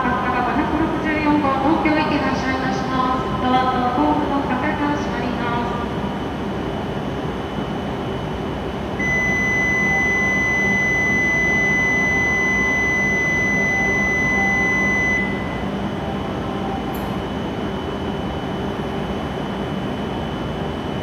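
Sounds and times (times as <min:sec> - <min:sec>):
low station hum: 0:00.0 - 0:21.0
high electronic departure buzzer: 0:09.0 - 0:18.2.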